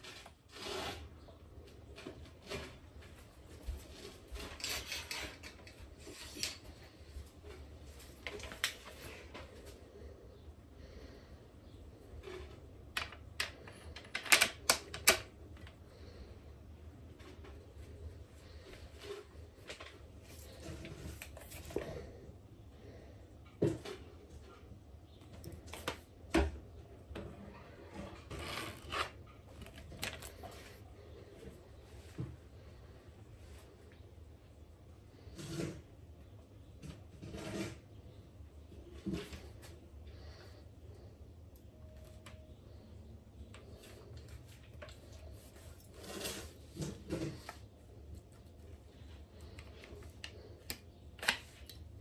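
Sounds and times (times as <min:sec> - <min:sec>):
rifle handling rubbing and scraping: 0:03.5 - 0:10.1, 0:27.9 - 0:31.4, 0:43.5 - 0:51.7.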